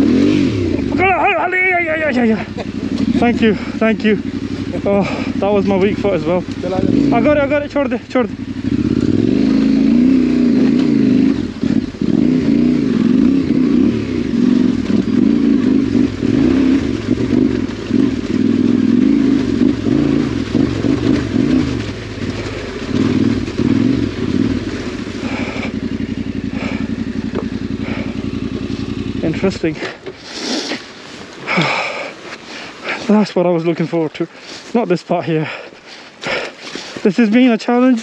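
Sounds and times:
motorcycle engine revving: 0.0s - 34.7s
motorcycle knocking over stones: 17.0s - 30.2s.

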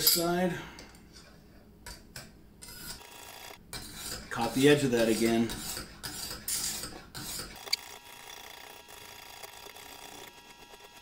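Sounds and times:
sharpening stone rasping on knife: 3.7s - 7.6s.

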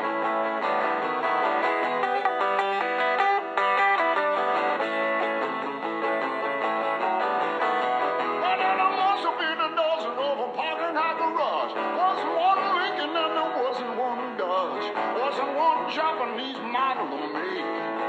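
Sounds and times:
acoustic guitar strumming: 0.0s - 18.0s
person singing: 8.2s - 18.0s.

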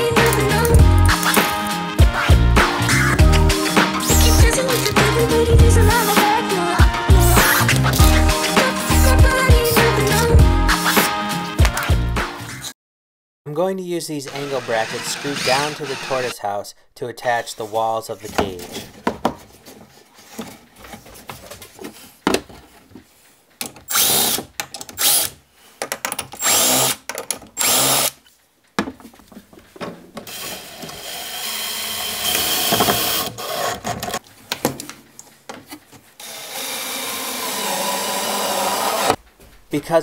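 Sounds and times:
cordless drill driving screws: 4.0s - 5.0s, 14.3s - 16.3s, 23.9s - 24.4s, 25.0s - 25.4s, 26.4s - 27.0s, 27.6s - 28.2s, 30.3s - 33.8s, 36.2s - 39.2s.

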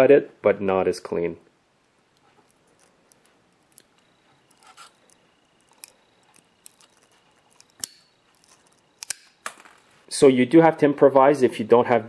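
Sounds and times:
wire cable being handled: 2.1s - 10.1s
bolt cutter clicks and scrapes: 4.5s - 9.3s.

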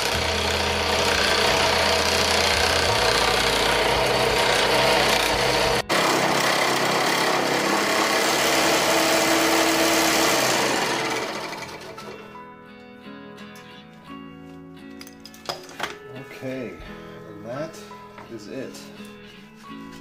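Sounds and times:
scroll saw cutting: 0.0s - 12.2s.

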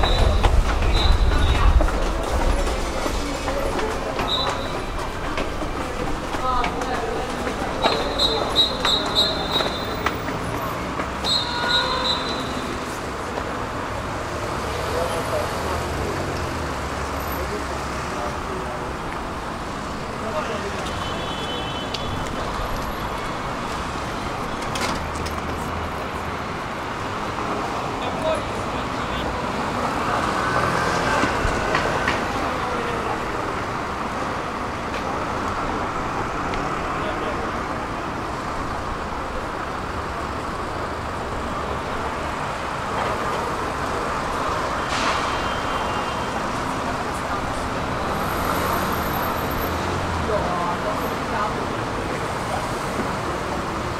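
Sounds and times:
passing cars: 0.0s - 53.9s.

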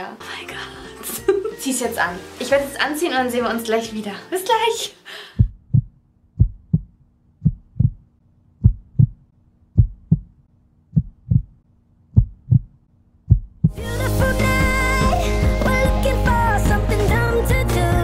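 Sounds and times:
heartbeat thumps: 5.4s - 13.8s.

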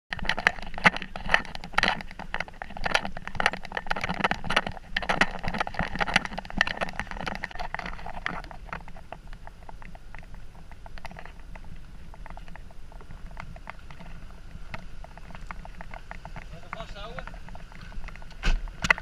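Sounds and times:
footsteps: 11.0s - 19.0s.

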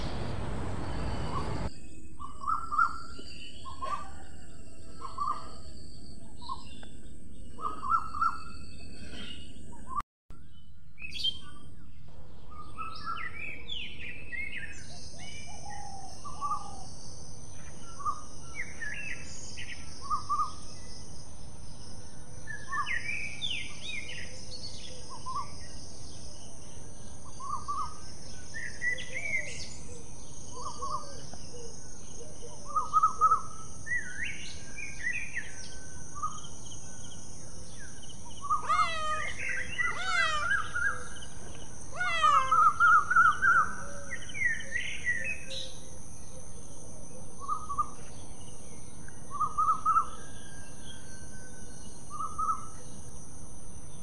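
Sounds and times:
birds chirping: 0.0s - 1.8s, 12.0s - 51.2s
steady high-pitched hiss: 0.0s - 2.2s.

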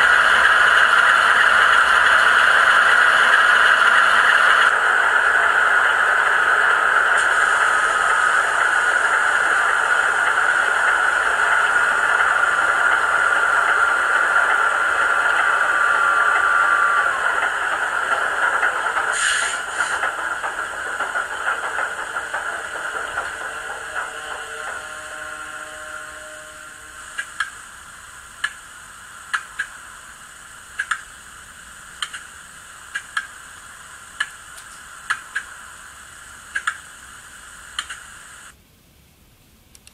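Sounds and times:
high whine: 0.0s - 38.6s
model locomotive engine hum: 0.0s - 38.6s
steady hiss: 0.0s - 39.9s
sharp ticks: 30.8s - 31.1s, 32.0s - 32.3s, 32.9s - 33.3s, 34.2s - 35.5s, 36.5s - 36.8s.

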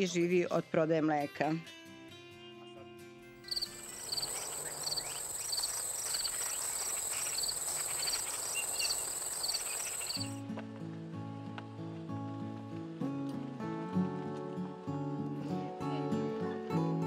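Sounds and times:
crickets chirping: 3.4s - 10.4s
high-pitched insect buzz: 3.5s - 10.4s.

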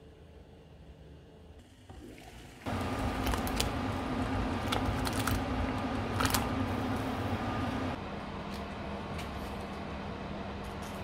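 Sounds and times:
water boiling hard in a pot: 2.0s - 8.0s
hob hum: 2.7s - 10.7s.

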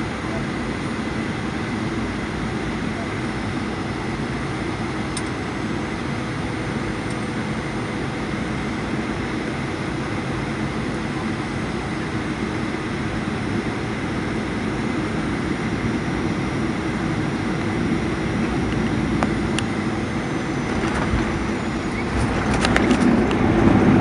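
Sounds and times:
jet engine roar inside cabin: 0.0s - 24.0s.

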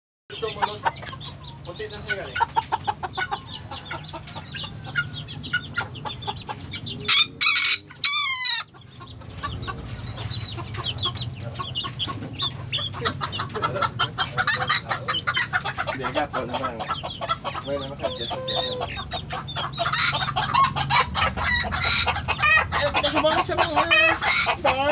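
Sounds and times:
chickens clucking: 0.3s - 24.9s
rooster crowing: 7.1s - 8.7s.

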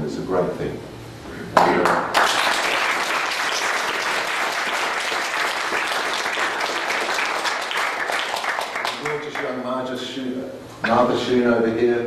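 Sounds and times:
audience applauding: 1.6s - 9.7s.

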